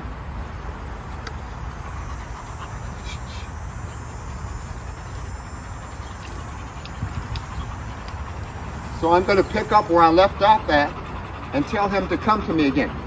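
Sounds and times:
low outdoor rumble: 0:00.0 - 0:13.0
faint ticks: 0:04.5 - 0:08.9.

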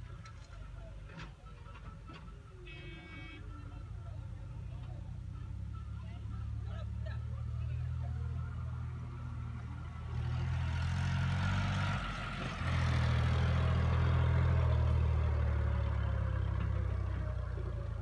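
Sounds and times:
heavy diesel engine running: 0:06.2 - 0:18.0.

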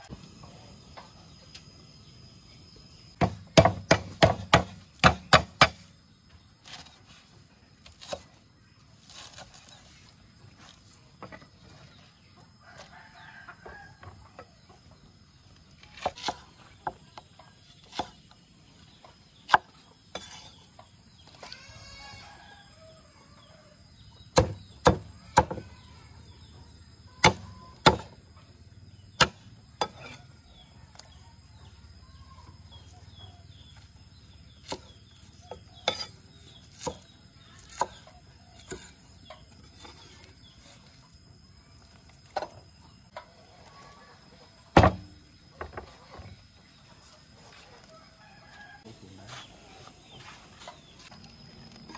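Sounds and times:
cleaver chopping on wooden block: 0:03.2 - 0:05.8, 0:24.4 - 0:25.6, 0:27.2 - 0:28.2, 0:44.8 - 0:45.0.

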